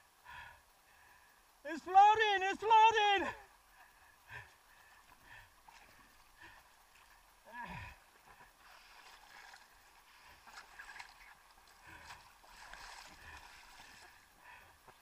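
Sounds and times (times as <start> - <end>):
water lapping against inflatable boat: 4.5 - 15.0.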